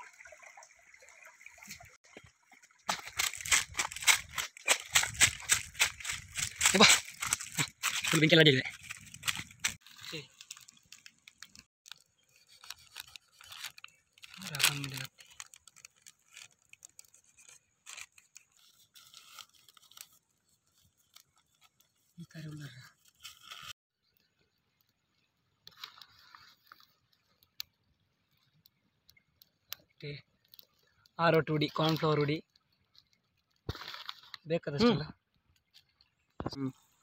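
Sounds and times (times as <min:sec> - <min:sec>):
faint trickling water: 0:00.0 - 0:04.1, 0:24.0 - 0:37.0
campfire crackling: 0:01.7 - 0:37.0
footsteps on dry leaves and stones: 0:02.1 - 0:11.7.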